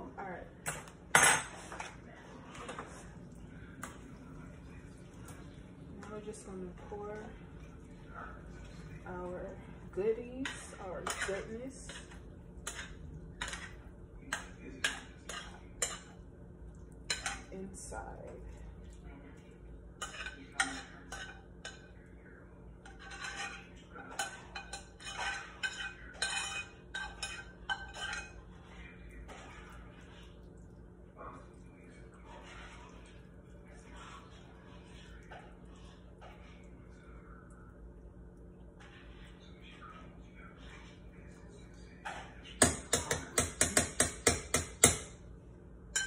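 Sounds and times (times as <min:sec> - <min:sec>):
utensil scraping a frying pan: 0:10.0 - 0:13.8, 0:22.8 - 0:28.7.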